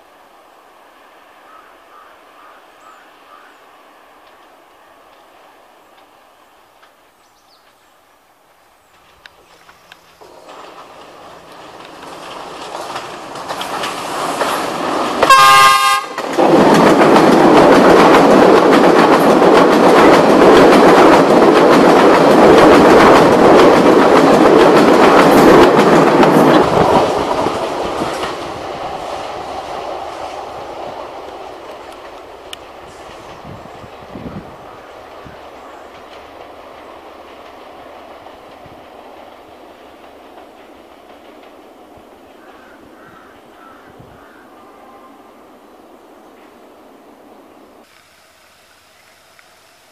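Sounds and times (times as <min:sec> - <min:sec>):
diesel train passing: 0:00.0 - 0:49.9
train horn blast: 0:15.2 - 0:16.3.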